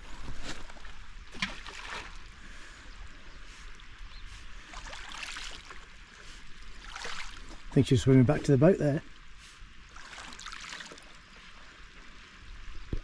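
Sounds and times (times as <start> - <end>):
water lapping on pebble shore: 4.4 - 11.3.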